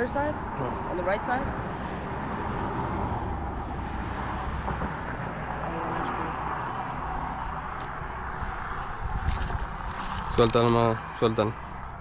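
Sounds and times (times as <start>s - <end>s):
road traffic rumble: 0.0s - 12.0s
wind noise on microphone: 7.0s - 10.8s.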